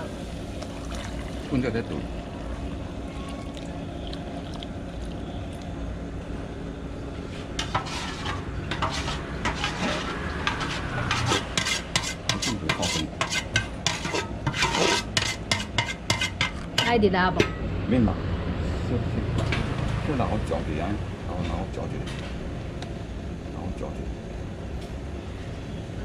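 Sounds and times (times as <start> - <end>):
milk pouring into boiling water: 0.2 - 5.8
utensil scraping metal pot: 7.6 - 17.6.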